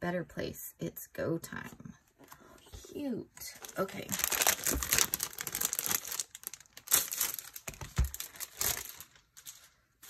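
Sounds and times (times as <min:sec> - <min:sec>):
paper and packaging crinkling: 0:03.4 - 0:10.0.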